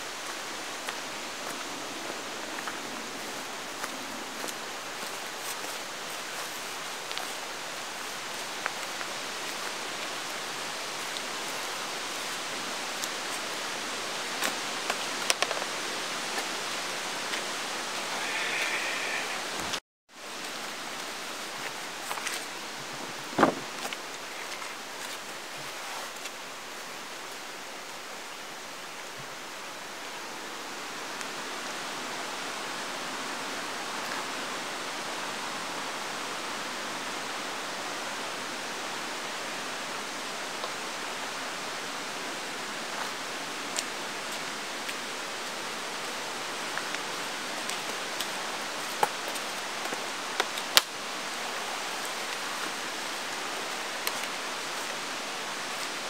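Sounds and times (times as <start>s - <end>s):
mountain stream rushing: 0.0s - 56.0s
camping gear clicks and knocks: 23.3s - 25.2s.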